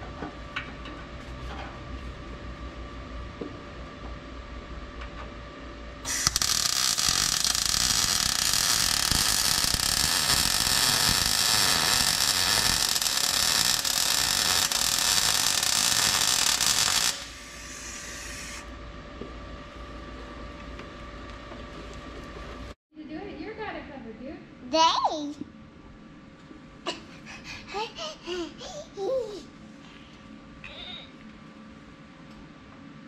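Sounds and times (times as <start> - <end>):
welder crackling sizzle: 6.0 - 18.7.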